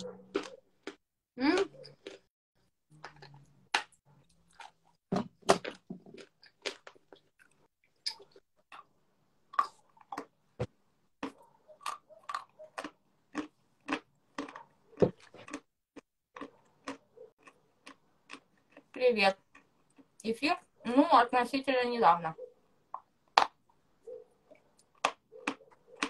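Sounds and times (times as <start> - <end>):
chewing crunches: 0.0 - 8.9, 9.5 - 10.4, 11.2 - 20.2, 24.4 - 26.0.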